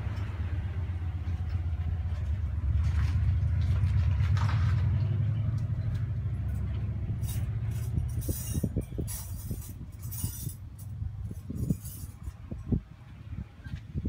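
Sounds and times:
low vehicle hum: 0:00.0 - 0:14.0
metal clinks and knocks: 0:05.8 - 0:12.8.

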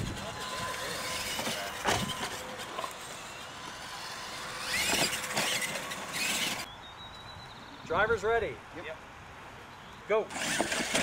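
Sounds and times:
toy truck motor whining: 0:00.0 - 0:06.7, 0:10.3 - 0:11.0.

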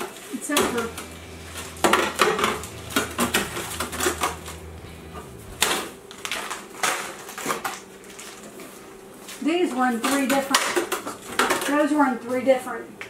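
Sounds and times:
low hum: 0:00.5 - 0:07.3.

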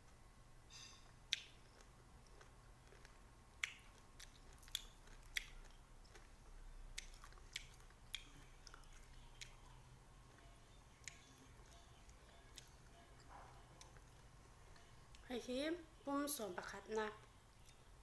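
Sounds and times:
person chewing: 0:00.8 - 0:15.2, 0:17.5 - 0:17.9
wet clicks of fruit bitten: 0:01.3 - 0:01.9, 0:03.6 - 0:05.8, 0:06.9 - 0:09.6.

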